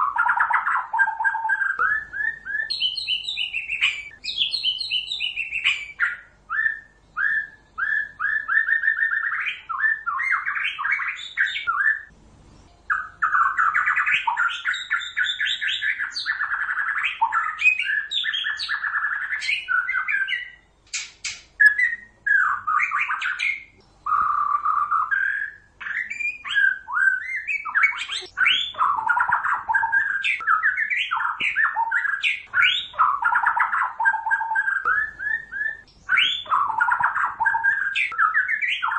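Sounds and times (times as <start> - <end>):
bird song whistles and chatters: 0.0 - 38.9.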